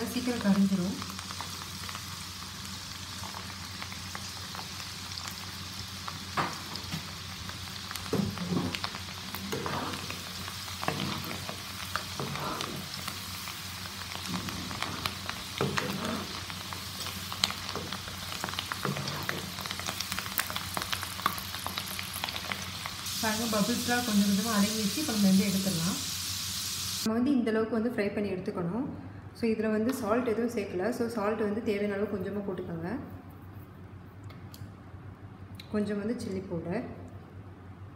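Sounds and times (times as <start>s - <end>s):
lentils deep-frying in oil: 0.0s - 27.1s
spoon knocking and scraping pan: 8.1s - 8.9s, 9.5s - 10.2s, 10.8s - 13.0s, 14.2s - 16.4s.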